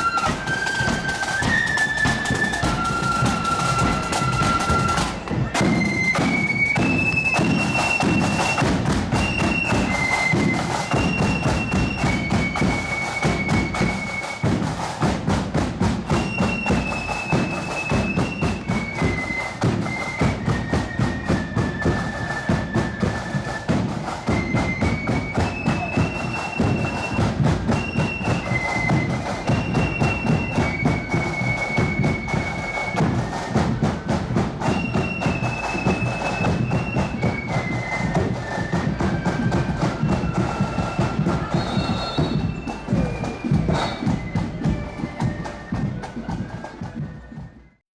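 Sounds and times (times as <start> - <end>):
steady drum beat: 0.0 - 47.6
shrill melody line: 34.6 - 47.1.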